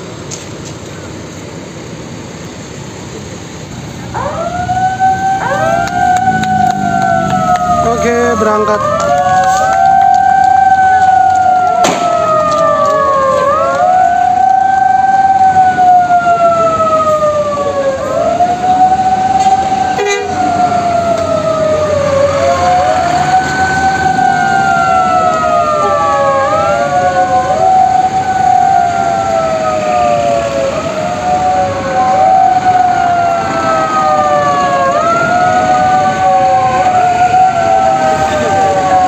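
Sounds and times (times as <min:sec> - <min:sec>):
vehicle sirens wailing: 0:00.0 - 0:39.0.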